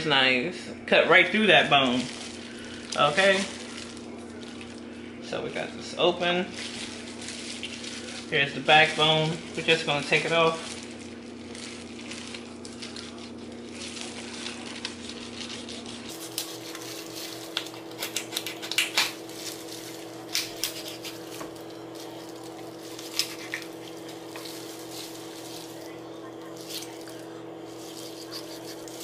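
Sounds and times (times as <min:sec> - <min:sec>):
steady hum: 0:10.5 - 0:29.0
knife cutting through chicken bone: 0:17.9 - 0:19.1.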